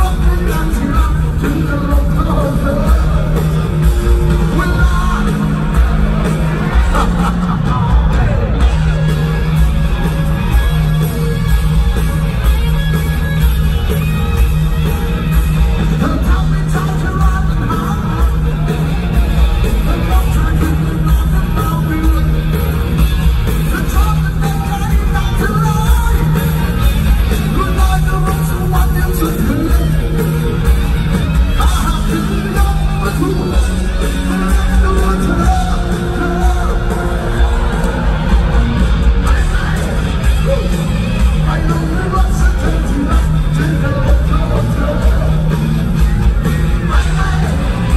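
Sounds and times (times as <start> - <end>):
person singing: 0.0 - 8.8, 31.5 - 47.9
live rock band playing: 0.0 - 47.9.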